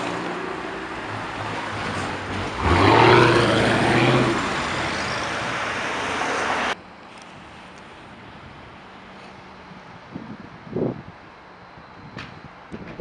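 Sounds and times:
car engine accelerating: 0.0s - 6.8s.

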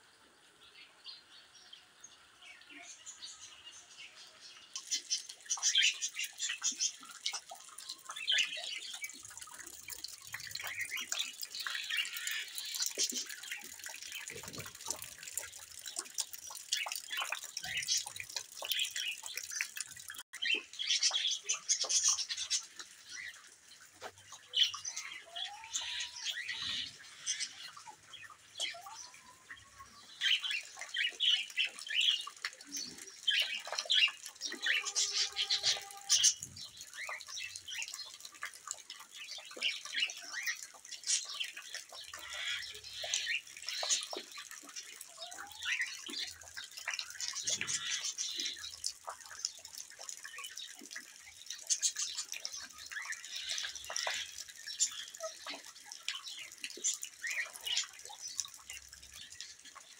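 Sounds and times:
rain dripping: 3.2s - 59.9s
chickens calling: 34.4s - 36.6s.

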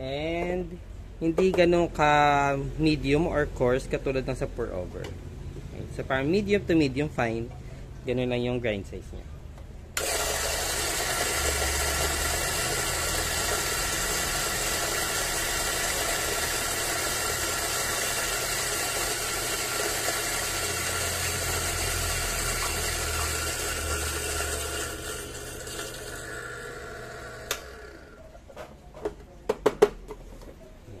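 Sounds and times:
coffee grinder grinding beans: 10.0s - 28.2s.

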